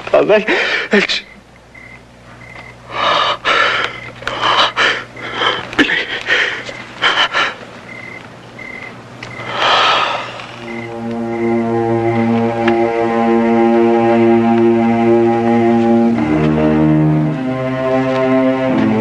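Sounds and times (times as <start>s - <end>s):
man gasping and panting: 0.5s - 1.0s, 2.9s - 7.7s
music cue: 10.6s - 19.0s.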